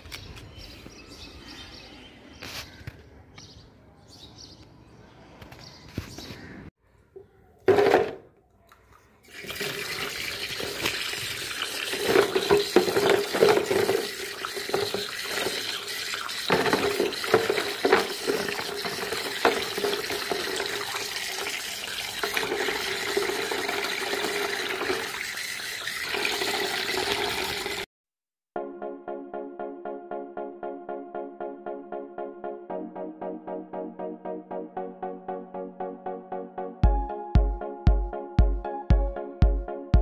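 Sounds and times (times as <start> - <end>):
tap water splashing into plastic basin: 9.3 - 27.8.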